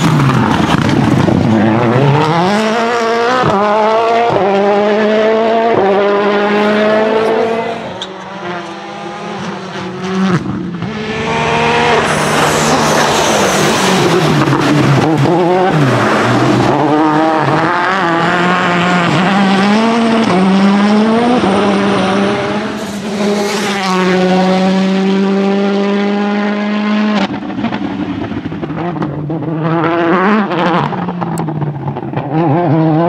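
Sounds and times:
rally car engine revving: 0.0 - 33.0.

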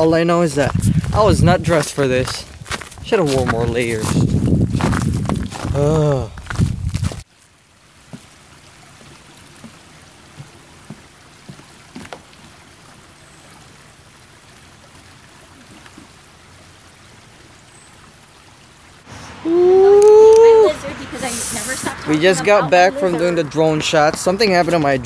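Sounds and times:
water trickling: 6.4 - 25.0.

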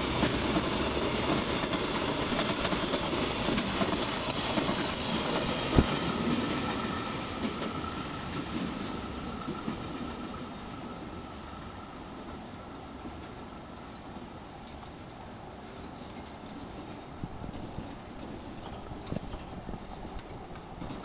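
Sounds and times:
freight wagons rolling on rails: 0.0 - 8.8, 13.0 - 21.0.

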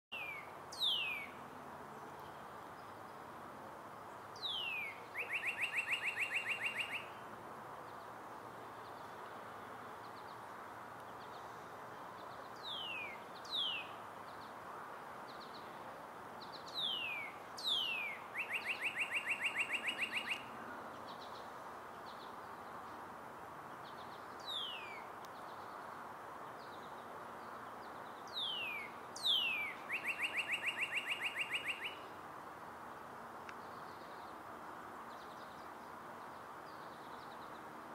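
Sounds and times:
bird singing whistles and trill: 0.1 - 1.4, 4.4 - 7.2, 12.6 - 14.0, 16.7 - 20.5, 24.4 - 25.0, 28.3 - 32.0
steady background hiss: 0.1 - 37.9.

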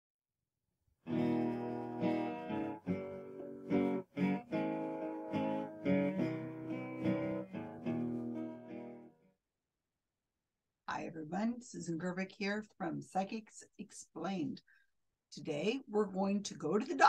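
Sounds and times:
strummed guitar chords: 1.1 - 9.1.

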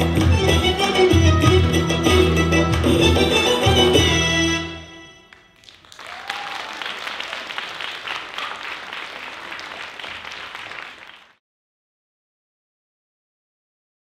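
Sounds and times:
audience applause: 5.3 - 11.4.

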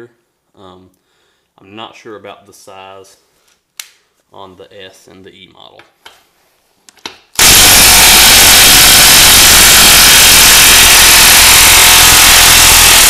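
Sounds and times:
impact wrench hammering: 7.4 - 13.0.

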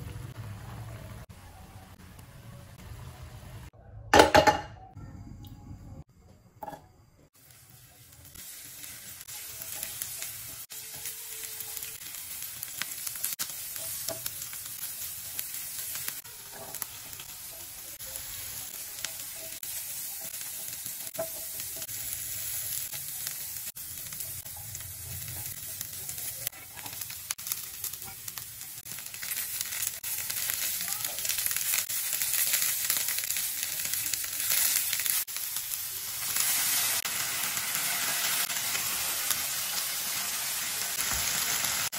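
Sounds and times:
vegetables sizzling in hot oil: 7.3 - 41.9
spatula scraping and tapping pan: 20.5 - 21.9.

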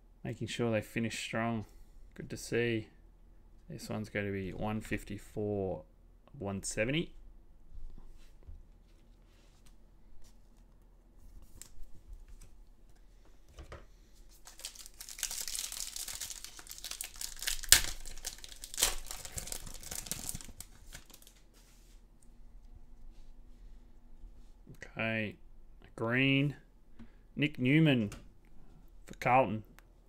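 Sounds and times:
foil wrapper crinkling and ripping: 14.4 - 21.4.

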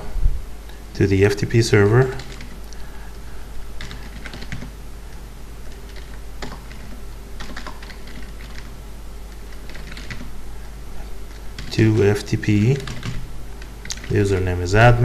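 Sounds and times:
computer keyboard typing: 2.2 - 2.6, 3.8 - 4.8, 5.6 - 8.7, 9.4 - 10.3, 11.6 - 14.5.

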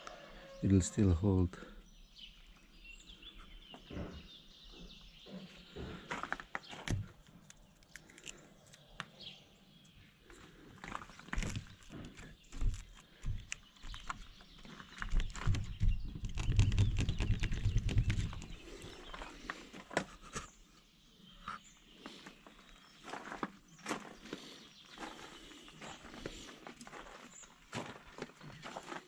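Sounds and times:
footsteps: 10.8 - 15.7, 23.0 - 29.0.

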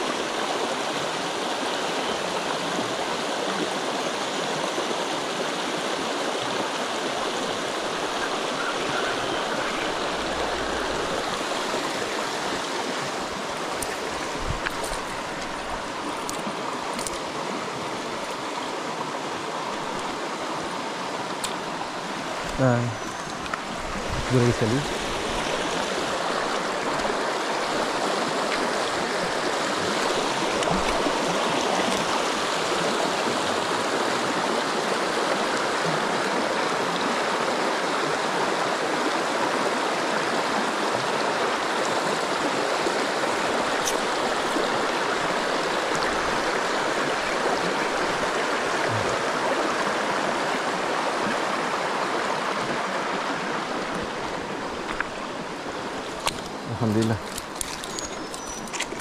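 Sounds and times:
river water rushing over rocks: 0.0 - 59.0.

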